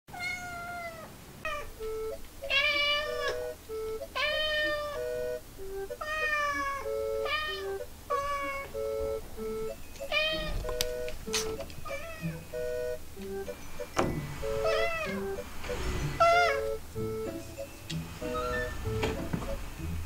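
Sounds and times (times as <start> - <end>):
cat meowing: 0.1 - 1.8, 2.5 - 3.4, 4.2 - 5.0, 6.0 - 8.8, 10.1 - 10.7, 11.8 - 12.5, 14.6 - 15.3, 16.2 - 16.8
light plucked music: 1.7 - 20.0.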